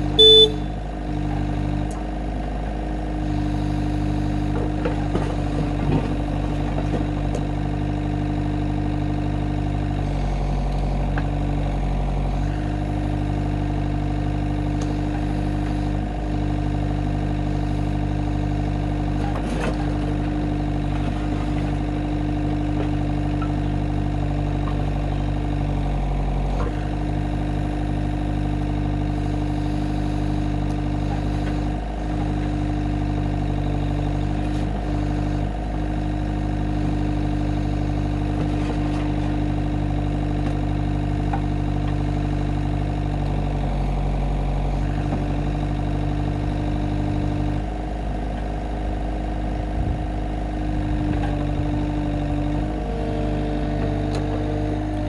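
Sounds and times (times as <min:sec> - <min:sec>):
diesel engine running: 0:00.0 - 0:55.0
digger bucket clunks: 0:04.4 - 0:07.6, 0:19.0 - 0:23.8, 0:38.0 - 0:42.6, 0:50.8 - 0:55.0.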